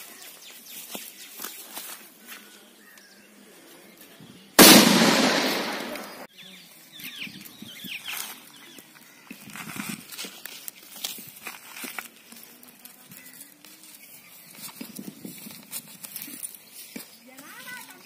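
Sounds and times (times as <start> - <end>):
firecracker bang: 4.6 - 6.3.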